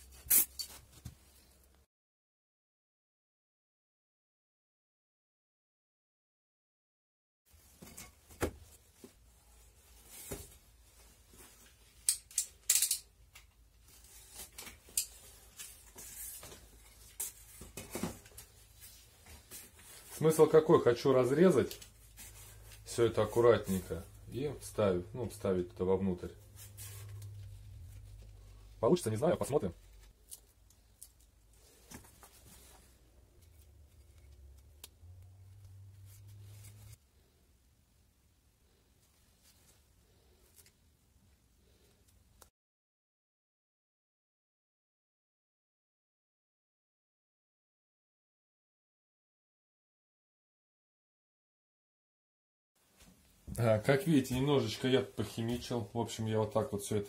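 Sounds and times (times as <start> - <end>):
low steady hum: 21.8 - 31.6.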